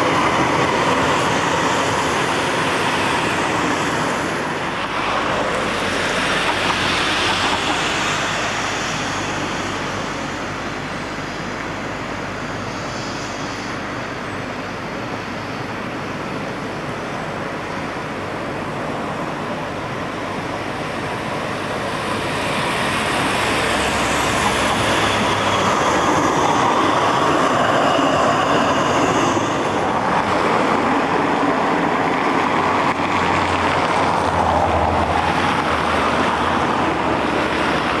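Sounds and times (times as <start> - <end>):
faint high whine of tram wheels: 0.0 - 38.0
road traffic: 0.0 - 38.0
tram passing: 0.0 - 38.0.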